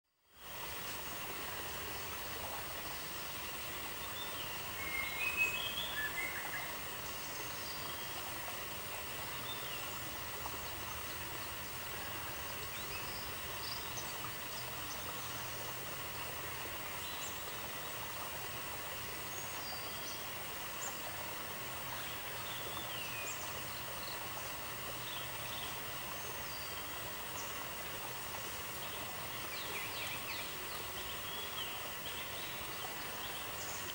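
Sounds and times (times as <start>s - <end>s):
outdoor background hiss: 0.0s - 33.9s.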